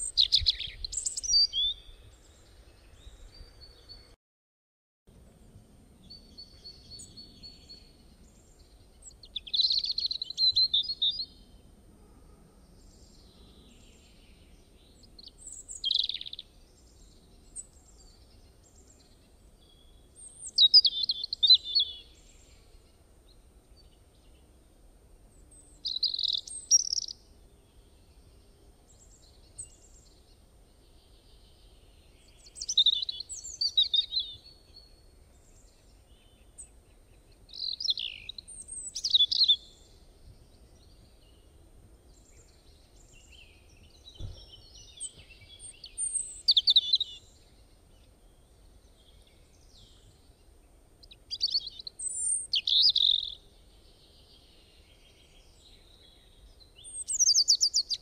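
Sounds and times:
songbird chirping: 0.0s - 4.2s, 5.1s - 11.8s, 12.4s - 58.0s
faint low background noise: 5.1s - 58.0s.

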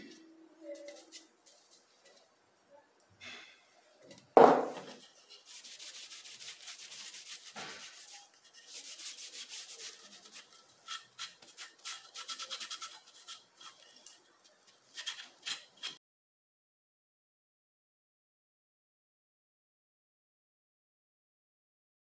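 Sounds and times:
cloth rubbing on wood: 4.5s - 14.1s.

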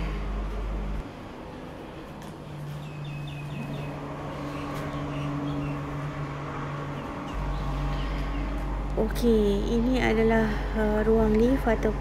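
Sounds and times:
bird chirping: 2.7s - 6.1s.

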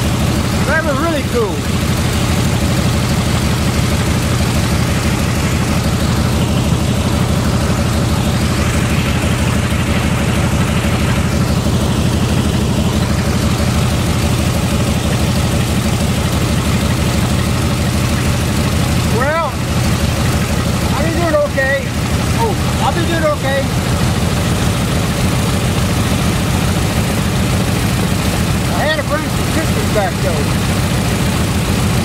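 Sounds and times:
radial engine running at low power: 0.0s - 32.0s.

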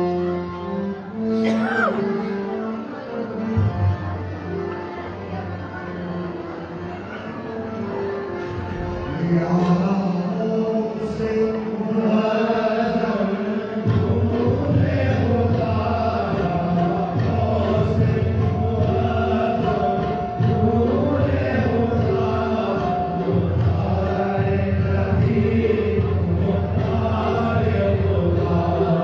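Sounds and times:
devotional chanting: 8.5s - 29.0s.

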